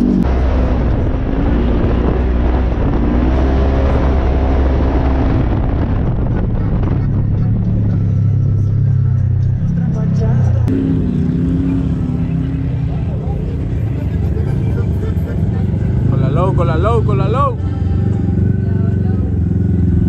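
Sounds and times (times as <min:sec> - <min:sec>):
vehicle engine running: 0:00.0 - 0:20.0
wind noise on microphone: 0:00.2 - 0:08.6.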